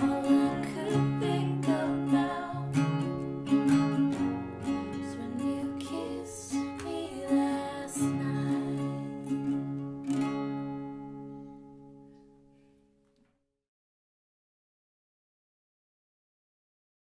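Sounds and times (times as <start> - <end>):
acoustic guitars strumming: 0.0 - 13.0.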